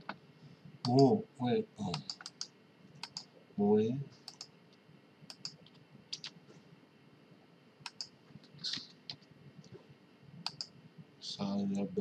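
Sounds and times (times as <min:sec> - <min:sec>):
mouse and keyboard clicks: 0:01.9 - 0:03.3, 0:04.3 - 0:04.5, 0:05.3 - 0:06.4, 0:07.9 - 0:08.1, 0:10.4 - 0:10.7.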